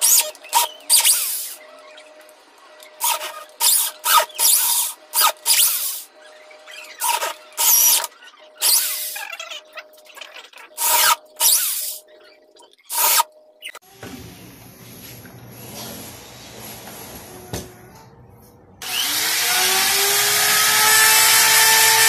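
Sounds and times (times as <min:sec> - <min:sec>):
electric drill motor whine: 0:03.0 - 0:09.2, 0:18.8 - 0:22.0
drill bit cutting wood: 0:06.9 - 0:09.2, 0:10.7 - 0:12.0, 0:12.9 - 0:13.3, 0:18.8 - 0:22.0.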